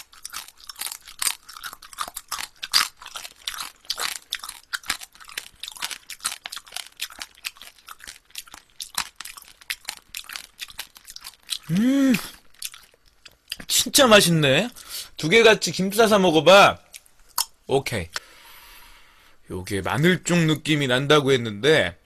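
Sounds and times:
wet chewing with shell crunches: 0:00.0 - 0:13.7, 0:16.9 - 0:17.6.

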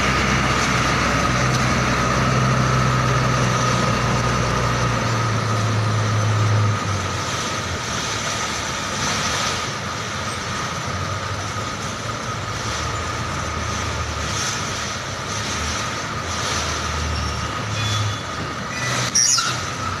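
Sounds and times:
truck diesel engine idling: 0:00.0 - 0:09.0.

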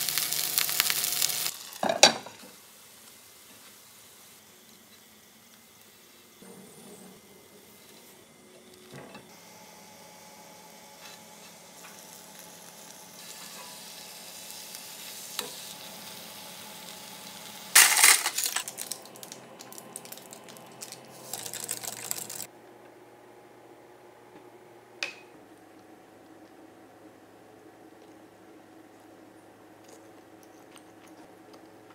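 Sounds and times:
food sizzling in oil: 0:00.0 - 0:06.4, 0:09.4 - 0:22.5.

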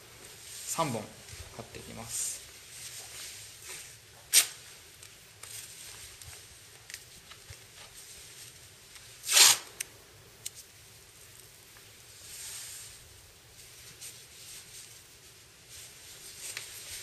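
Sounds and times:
tape ripping off roll: 0:04.3 - 0:04.6, 0:09.2 - 0:09.8
tape peeling: 0:04.3 - 0:07.9, 0:09.0 - 0:10.6.

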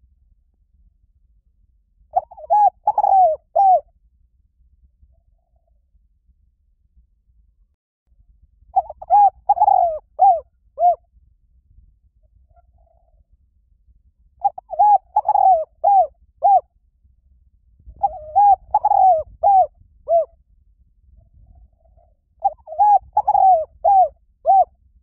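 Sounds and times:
dove cooing: 0:02.2 - 0:03.8, 0:08.8 - 0:11.0, 0:14.4 - 0:16.7, 0:18.0 - 0:20.3, 0:21.6 - 0:24.7.

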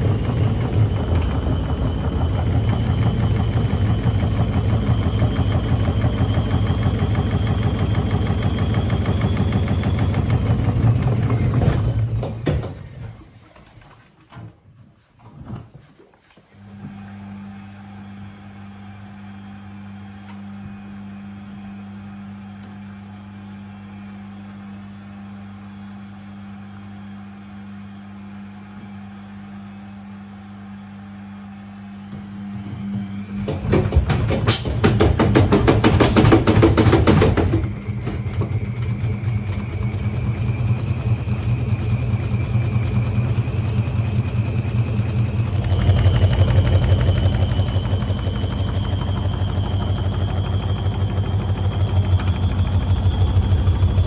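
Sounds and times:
washing machine drum rattling: 0:00.0 - 0:12.9, 0:33.4 - 0:41.8
washing machine motor whine: 0:00.0 - 0:14.5, 0:16.5 - 0:54.0
washing machine low hum: 0:00.0 - 0:54.0.

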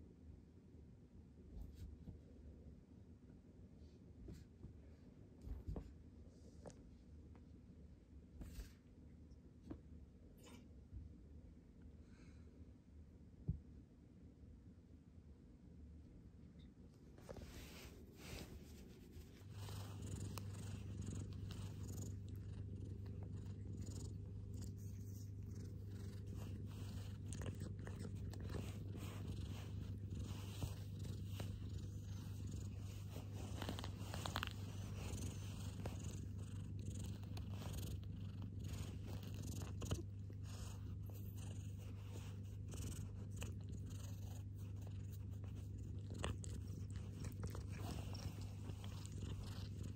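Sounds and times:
cat purring: 0:16.6 - 0:49.9.

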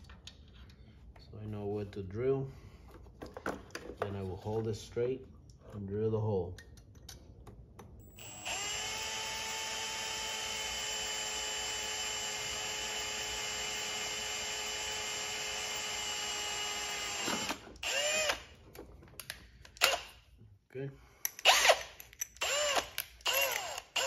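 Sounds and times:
power drill whining: 0:08.1 - 0:18.5, 0:21.4 - 0:24.0.

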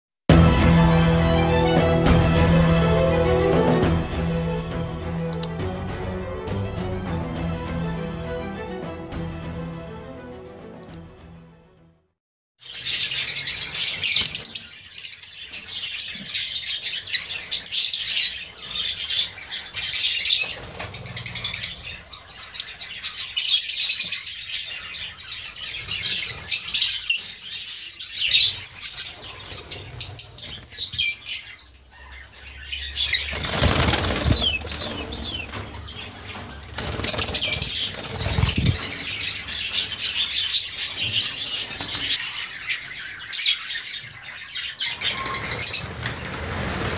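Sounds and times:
lovebirds chirping and squawking: 0:12.6 - 0:46.9.

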